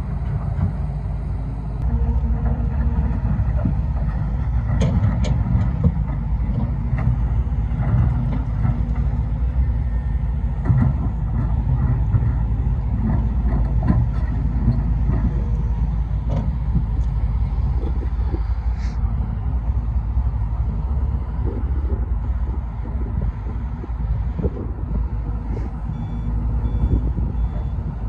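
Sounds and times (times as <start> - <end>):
vehicle rumble on rough ground: 0.0 - 28.0
knocks and clatters: 2.4 - 9.3, 10.6 - 18.2.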